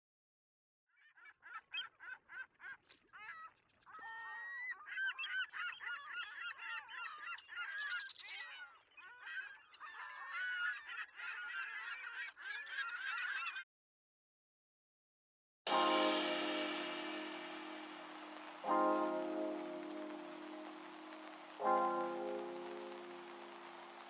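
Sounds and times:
flock of birds calling: 3.9s - 13.6s, 15.7s - 24.0s.

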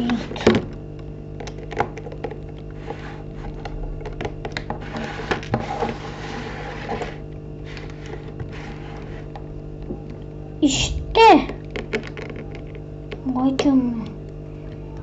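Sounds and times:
steady low hum: 0.0s - 15.0s
baseplate scraping on wooden table: 4.8s - 9.3s
plastic bricks clicking and tapping: 11.5s - 13.7s.

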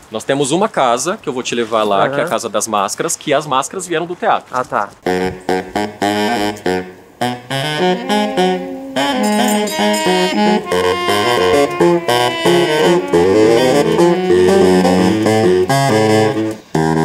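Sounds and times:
baritone saxophones playing: 5.0s - 17.0s.

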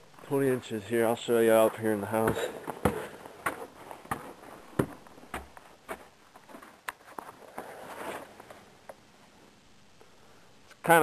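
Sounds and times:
footsteps on snowy wooden steps: 1.1s - 8.3s.

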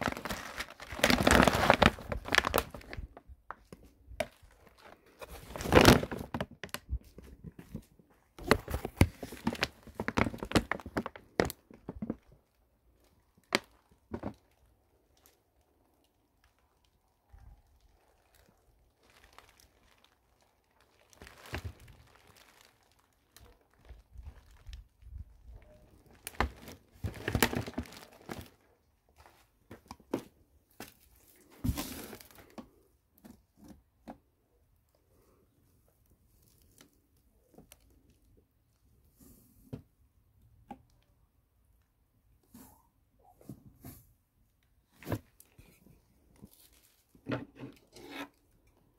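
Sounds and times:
plastic sack crinkling: 0.0s - 32.6s, 46.3s - 47.2s.

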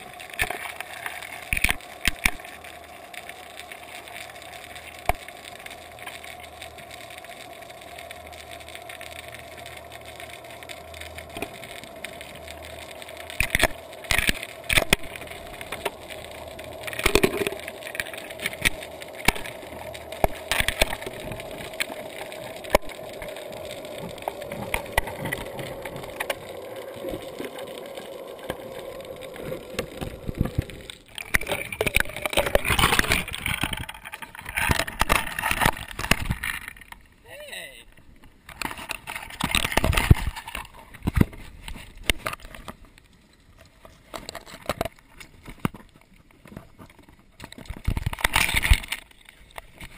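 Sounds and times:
steady underwater hum: 0.0s - 49.9s
water sloshing and splashing: 13.2s - 37.0s.

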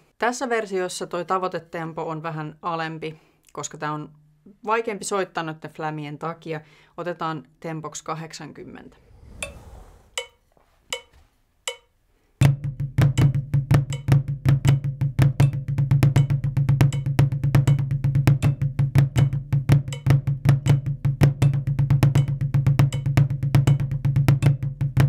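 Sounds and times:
drumsticks on practice pad: 9.4s - 11.9s
metronome clicks: 10.2s - 11.9s.

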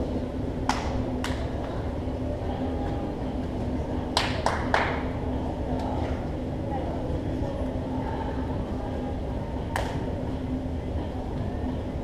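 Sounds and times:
indoor hall hum: 0.0s - 12.0s
hand claps: 0.6s - 1.8s, 4.1s - 5.1s, 9.7s - 10.0s.

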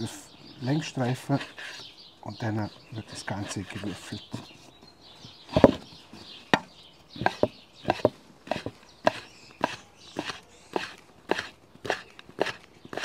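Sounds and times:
knife chopping on wooden board: 6.6s - 13.0s.

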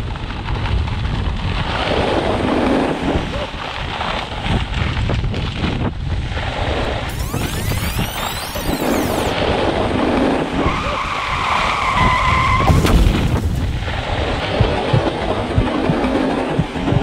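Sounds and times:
wind rumbling on microphone: 0.0s - 17.0s
skis scraping over snow: 1.7s - 3.2s
steady high tone: 7.1s - 9.3s.

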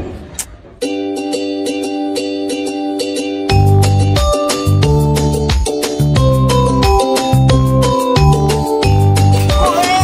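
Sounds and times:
heavy bass line: 2.6s - 10.0s.

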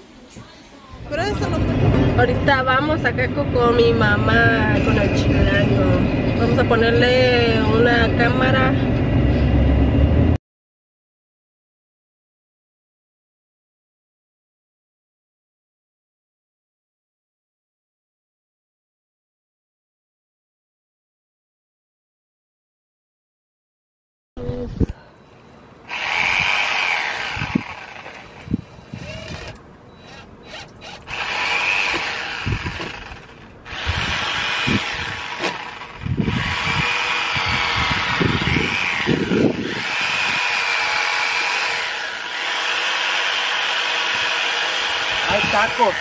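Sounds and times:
cordless drill whining into wood: 25.9s - 46.0s.

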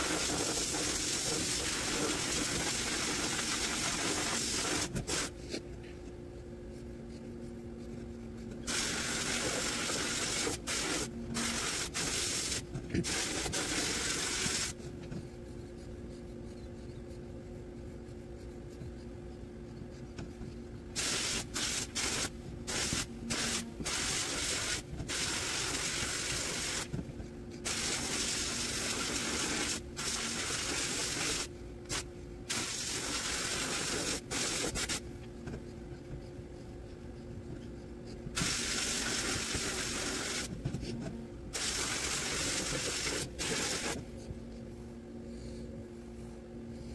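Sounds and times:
steady low hum: 0.0s - 46.9s
sandblast gun hissing: 8.7s - 14.8s, 21.0s - 26.9s, 27.6s - 35.0s, 38.4s - 40.5s, 41.6s - 44.0s.

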